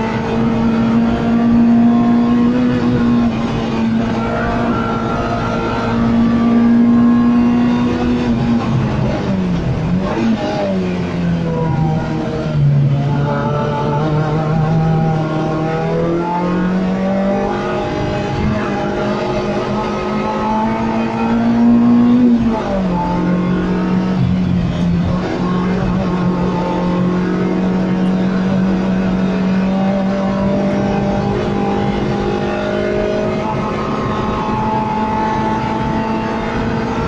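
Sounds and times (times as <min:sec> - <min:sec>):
car engine revving: 0:00.0 - 0:37.0.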